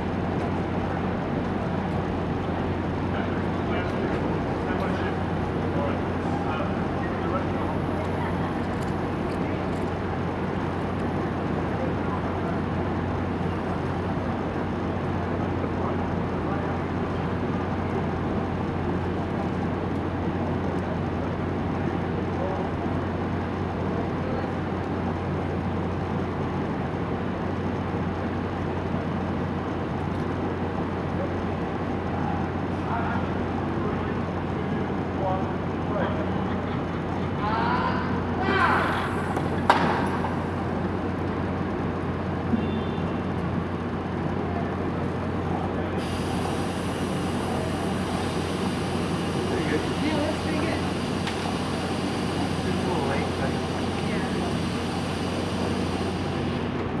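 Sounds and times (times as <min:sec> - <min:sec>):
steady low hum: 0:00.0 - 0:57.0
traffic-like rumble: 0:00.0 - 0:57.0
faint voices: 0:00.6 - 0:20.7, 0:44.2 - 0:57.0.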